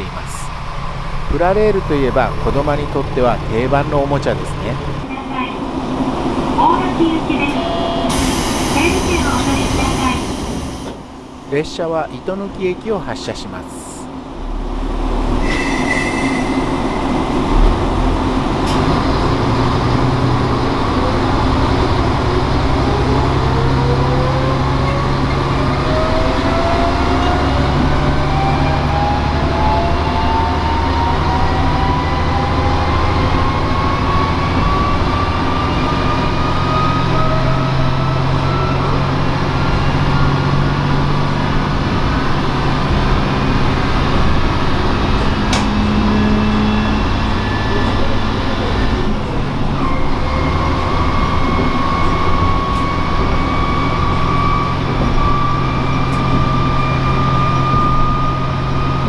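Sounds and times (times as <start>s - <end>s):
low engine drone: 0.0s - 59.0s
rising whine: 14.2s - 41.1s, 42.4s - 59.0s.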